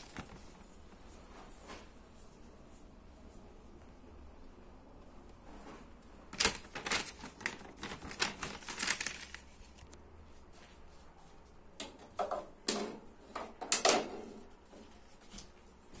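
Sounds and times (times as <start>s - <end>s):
plastic bag rustling: 0.0s - 1.9s, 5.6s - 10.0s.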